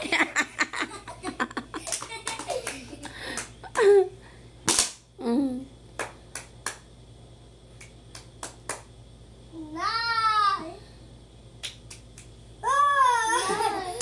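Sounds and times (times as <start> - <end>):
light hand claps and slaps: 1.8 - 3.9, 4.7 - 5.0, 6.0 - 6.9, 7.8 - 8.9, 11.6 - 12.3
loud sharp smack: 4.7 - 5.0
children's excited exclamations: 12.6 - 14.0.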